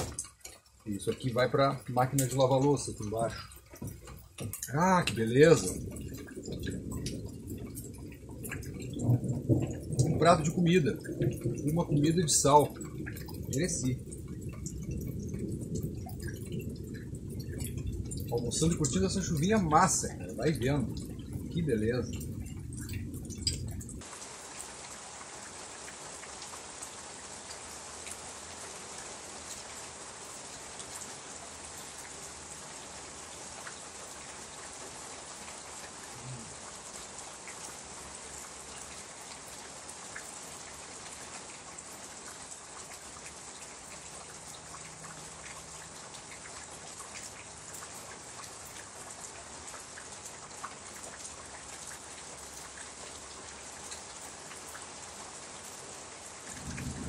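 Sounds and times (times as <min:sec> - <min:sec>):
drops ticking close by: 0:00.0 - 0:24.1
light rain falling: 0:00.0 - 0:57.0.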